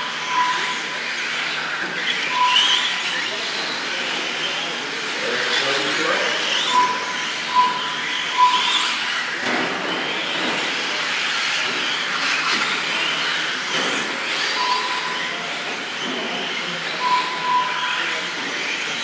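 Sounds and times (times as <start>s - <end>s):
short high beeps: 0.0s - 0.8s, 2.3s - 2.9s, 6.6s - 8.8s, 14.6s - 15.4s, 17.0s - 18.0s
rc trucks motors whining: 0.0s - 19.0s.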